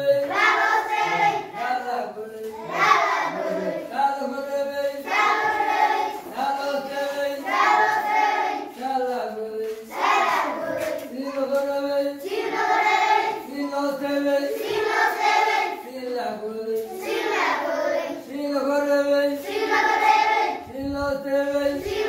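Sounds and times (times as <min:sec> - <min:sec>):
children chanting in unison: 0:00.0 - 0:04.0, 0:05.0 - 0:08.8, 0:09.8 - 0:16.0, 0:16.8 - 0:18.4, 0:19.3 - 0:20.7, 0:21.7 - 0:22.0.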